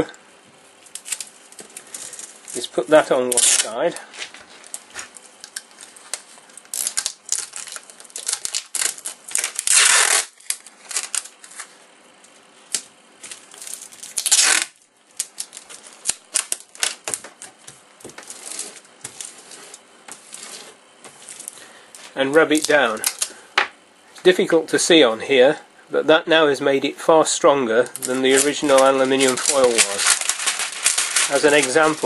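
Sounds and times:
aluminium foil crinkling: 0.8s - 11.8s, 12.7s - 23.4s, 27.9s - 32.0s
tape ripping off roll: 3.3s - 3.8s, 4.6s - 11.7s, 12.7s - 21.6s, 22.5s - 23.4s, 28.0s - 32.0s.

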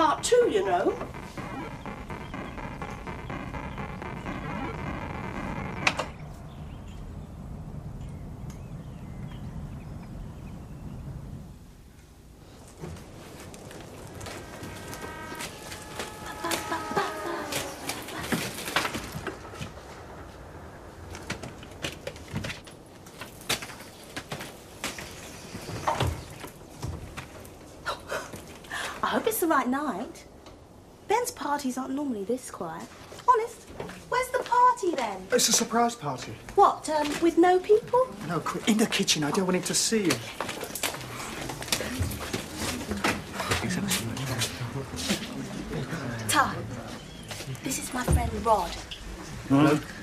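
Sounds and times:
low steady hum: 0.0s - 31.6s
electronic tones: 14.0s - 20.4s.

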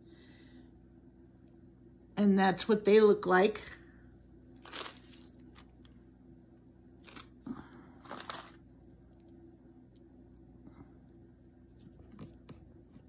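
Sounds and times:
faint steady hum: 0.0s - 13.0s
plastic packet crinkling: 4.6s - 6.0s, 7.0s - 7.4s, 8.0s - 9.2s.

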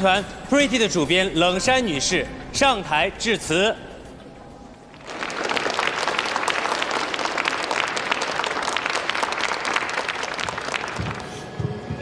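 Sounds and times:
audience applauding: 4.9s - 11.5s.

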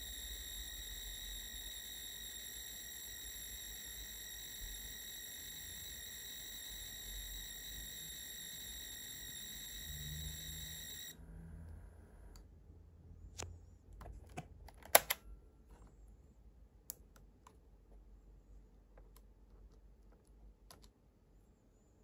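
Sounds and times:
cassette data signal tone: 0.0s - 11.2s.

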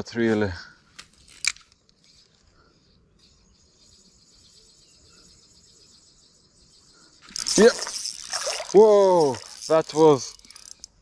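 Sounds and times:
high-pitched insect chirring: 7.3s - 11.0s.

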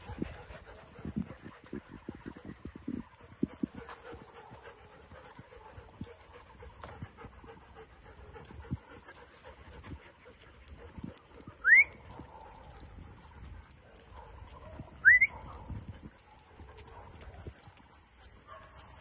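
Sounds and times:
person whistling: 11.6s - 12.0s, 15.0s - 15.3s
footsteps on wet pavement: 15.8s - 19.0s.

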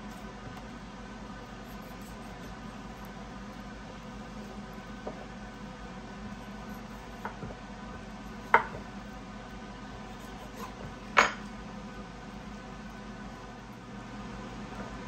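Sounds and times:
steady background hum: 0.0s - 15.0s
knife knocking on cutting board: 8.5s - 8.9s.

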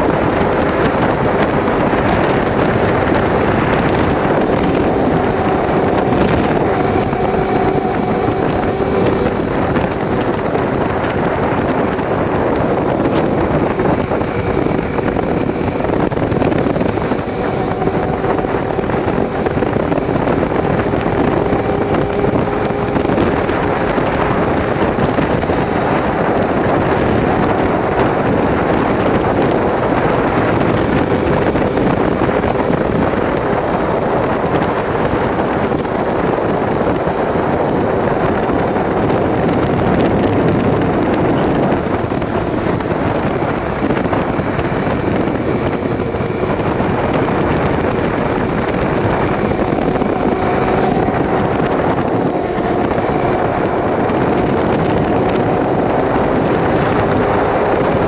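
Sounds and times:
motorcycle engine running: 0.0s - 58.0s
wind buffeting microphone: 0.0s - 58.0s.

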